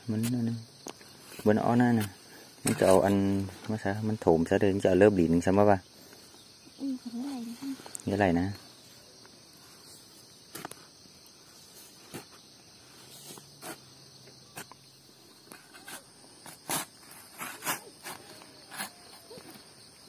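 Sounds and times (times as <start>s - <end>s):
insects chirring: 0.0s - 20.0s
hoe scraping soil: 1.2s - 3.6s, 11.6s - 13.9s, 15.4s - 19.7s.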